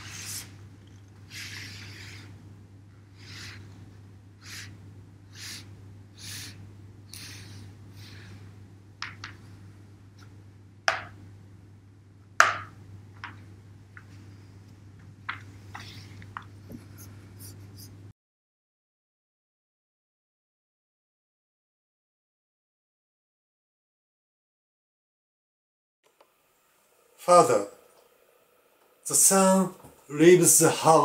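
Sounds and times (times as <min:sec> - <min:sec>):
brush swishing across paper: 0:00.0 - 0:00.6, 0:01.3 - 0:02.4, 0:03.2 - 0:03.8, 0:16.8 - 0:18.0.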